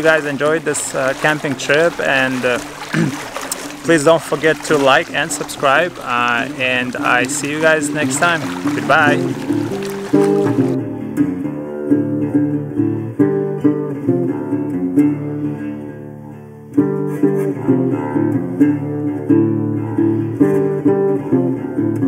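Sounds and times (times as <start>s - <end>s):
acoustic guitar music: 0.0s - 22.0s.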